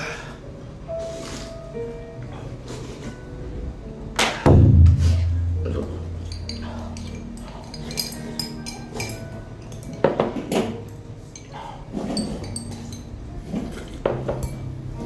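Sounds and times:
bowls and chopsticks clinking: 0:05.6 - 0:14.7.

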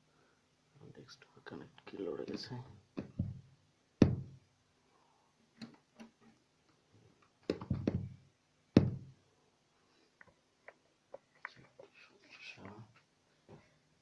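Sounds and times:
cables knocking and clicking: 0:07.3 - 0:09.0.

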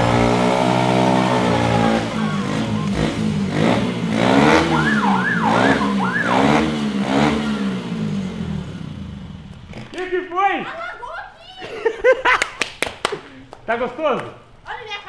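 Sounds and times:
high wailing siren-like tone: 0:00.0 - 0:03.0, 0:04.5 - 0:06.8
motorcycle engine revving: 0:00.0 - 0:09.9.

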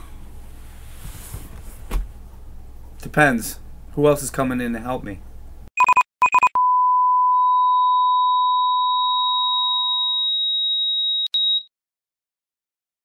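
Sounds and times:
electronic beeps: 0:05.8 - 0:11.7.

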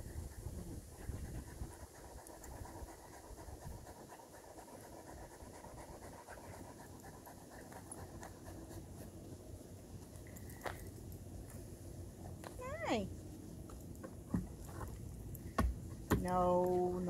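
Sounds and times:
dog panting: 0:00.0 - 0:09.4.

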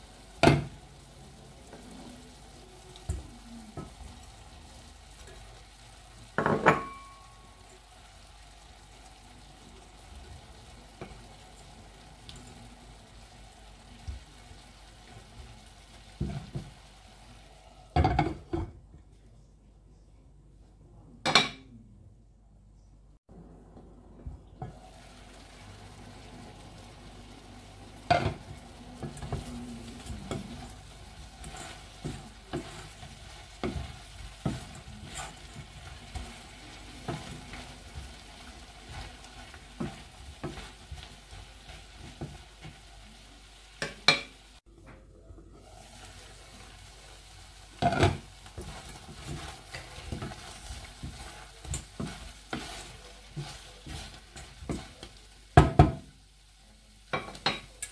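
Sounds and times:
food sizzling in a frying pan: 0:00.0 - 0:18.7, 0:24.6 - 0:44.7, 0:45.5 - 0:57.9
wooden spatula scraping a pan: 0:28.1 - 0:44.0, 0:45.6 - 0:56.1.

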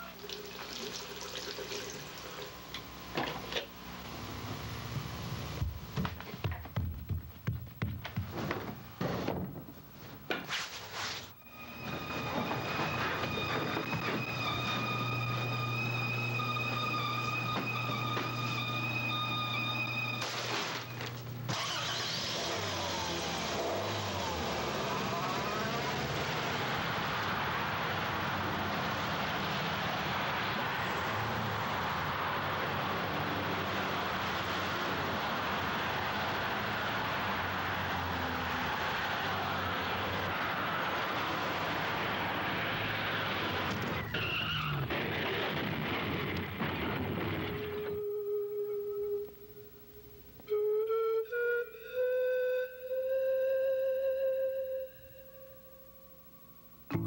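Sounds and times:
car engine: 0:11.5 - 0:47.9
road noise: 0:11.5 - 0:48.0
held flute note: 0:47.8 - 0:49.7, 0:50.4 - 0:56.2.

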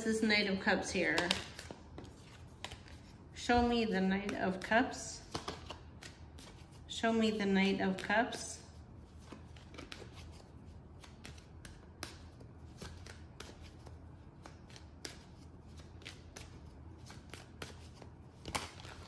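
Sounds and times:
cards being shuffled: 0:01.0 - 0:04.6, 0:05.2 - 0:06.8, 0:09.1 - 0:19.0.

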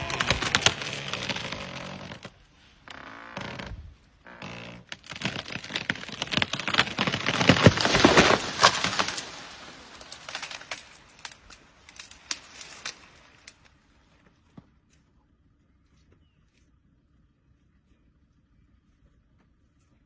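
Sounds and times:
tree crashing down: 0:00.0 - 0:02.4, 0:03.4 - 0:13.7
wood cracking and snapping: 0:00.0 - 0:13.7
tree trunk creaking: 0:00.0 - 0:14.6.

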